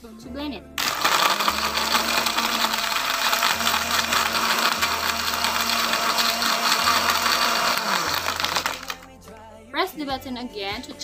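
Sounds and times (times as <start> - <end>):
blender whirring with ice: 0.8 - 9.1.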